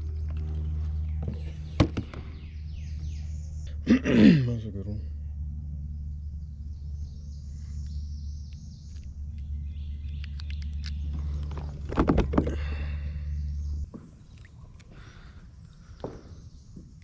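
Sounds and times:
low rumble of handling noise: 0:00.0 - 0:17.0
small clicks: 0:07.8 - 0:12.0.

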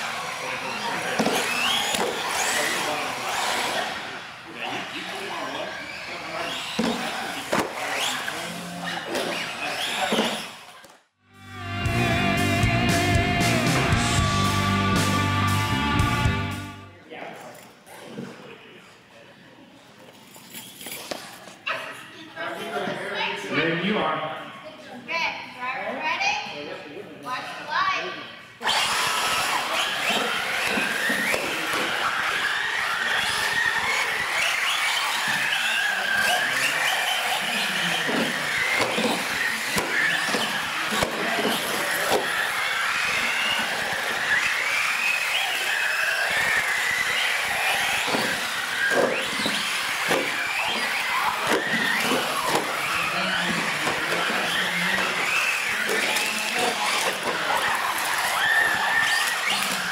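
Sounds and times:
tyres squealing: 0:00.0 - 0:10.7, 0:28.6 - 0:59.9
rc car motors whining: 0:00.0 - 0:16.8, 0:20.2 - 0:23.1, 0:28.6 - 0:59.9.

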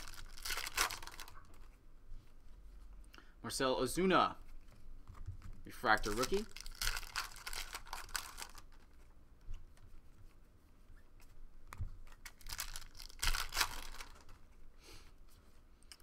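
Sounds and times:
foil pack crinkling: 0:00.0 - 0:01.6, 0:05.3 - 0:09.0, 0:12.0 - 0:14.4
cards being handled: 0:00.0 - 0:03.0, 0:04.4 - 0:14.6.

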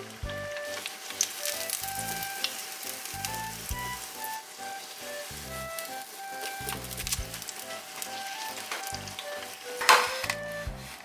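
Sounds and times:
oil sizzling and crackling: 0:00.0 - 0:11.0.

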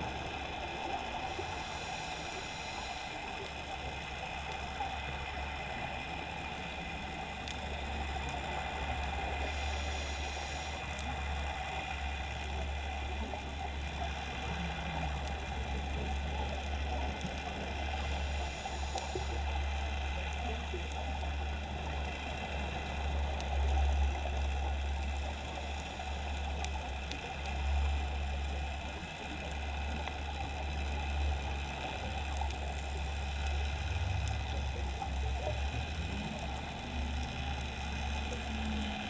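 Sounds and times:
steady hiss: 0:00.0 - 0:11.2, 0:17.6 - 0:20.2
underwater low rumble: 0:00.0 - 0:39.0
faint clicks: 0:00.1 - 0:39.0.

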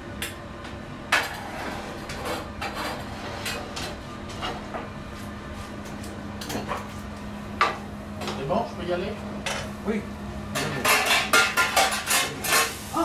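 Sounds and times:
steady low hum: 0:00.0 - 0:13.0
utensils and dishes clinking: 0:10.5 - 0:12.8.

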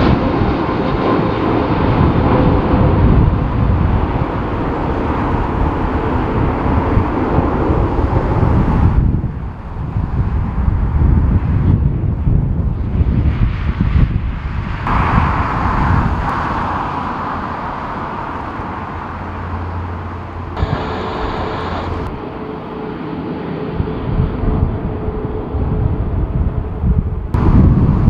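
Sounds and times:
jet engines running: 0:00.0 - 0:28.0
wind buffeting microphone: 0:00.0 - 0:28.0
engine whine with thin tone: 0:14.9 - 0:28.0.

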